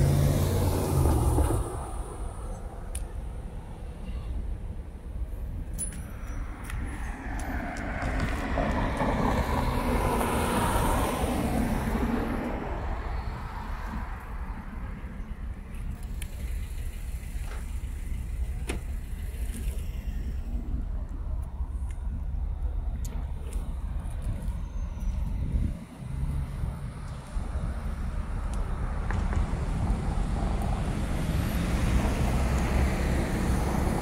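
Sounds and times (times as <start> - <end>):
car passing by: 6.8 - 14.3, 29.1 - 34.0
steady low rumble: 11.2 - 31.4.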